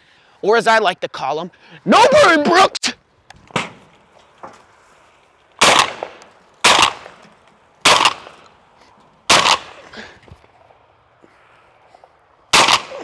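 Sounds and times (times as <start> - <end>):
shotgun shots echoing: 5.6 - 7.2, 7.8 - 8.4, 9.3 - 9.8, 12.5 - 13.0.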